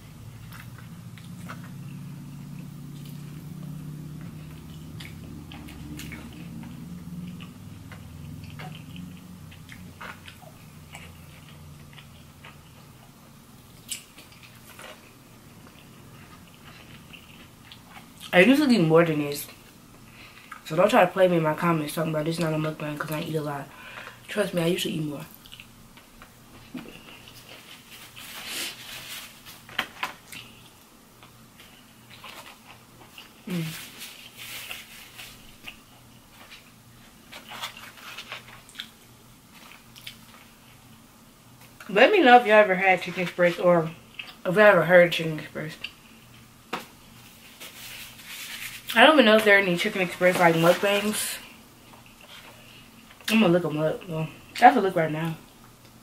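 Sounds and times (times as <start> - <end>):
low steady hum: 0.0 - 56.0
chewing and biting food: 0.2 - 18.3, 30.2 - 40.9.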